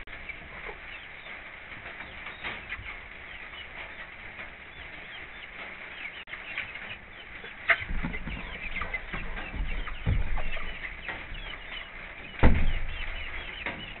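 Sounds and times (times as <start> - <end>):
hens clucking: 0.0 - 14.0
dull knocks and bumps: 7.7 - 14.0.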